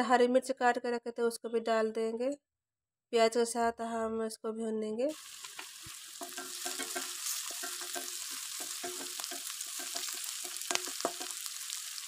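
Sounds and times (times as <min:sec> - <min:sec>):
onions sizzling in hot oil: 0:05.1 - 0:12.0.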